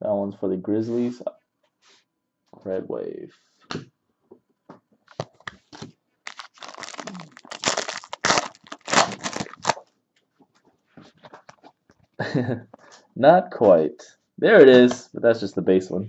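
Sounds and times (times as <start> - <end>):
foil wrapper tearing and crinkling: 5.2 - 9.8.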